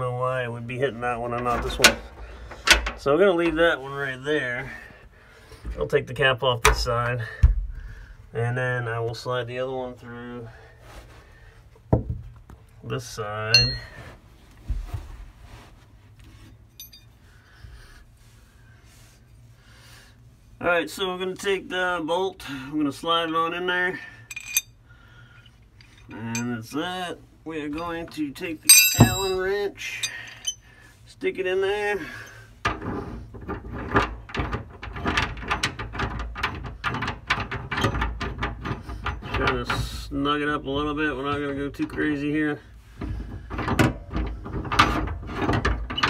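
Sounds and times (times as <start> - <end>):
wrench clicking and scraping on bolt: 24.3 - 24.6.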